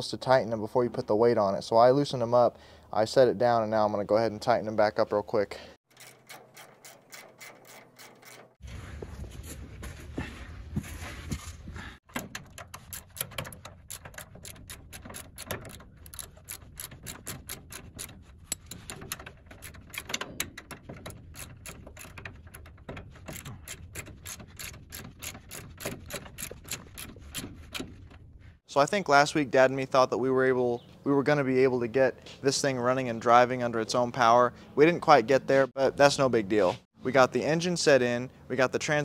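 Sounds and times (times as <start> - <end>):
ratchet wrench clicking: 12.5 - 27.8.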